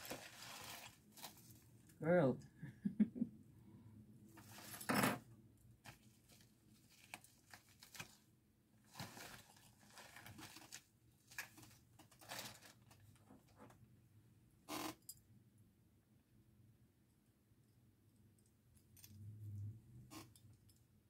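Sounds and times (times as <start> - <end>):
plastic packaging crinkling: 0.0 - 1.6, 5.8 - 8.2, 8.8 - 13.2.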